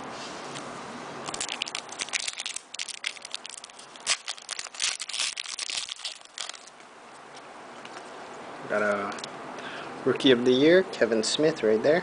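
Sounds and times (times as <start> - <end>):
foil pack crinkling and tearing: 1.2 - 6.8.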